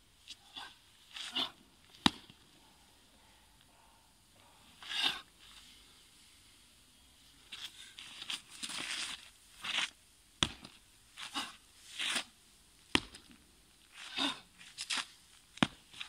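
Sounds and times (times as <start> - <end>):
shoes scuffing on gritty dirt: 7.5 - 12.3, 13.9 - 16.0.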